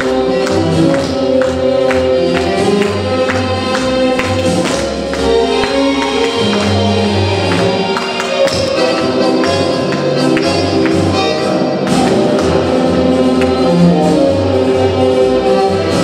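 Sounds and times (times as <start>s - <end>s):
ballroom tango music: 0.0s - 16.0s.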